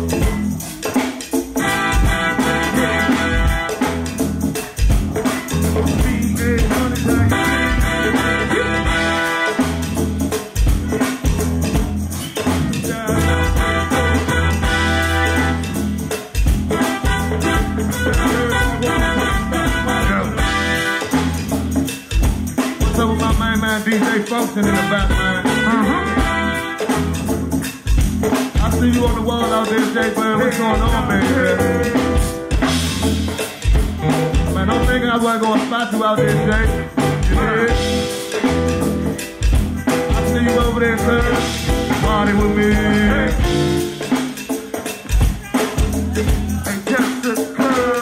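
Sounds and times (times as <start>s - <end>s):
drum kit beat: 0.0s - 48.0s
live band music: 0.0s - 48.0s
person singing: 5.2s - 9.8s, 12.3s - 15.6s, 17.3s - 21.3s, 22.7s - 26.9s, 28.6s - 32.6s, 33.2s - 38.9s, 39.6s - 44.2s, 45.1s - 48.0s.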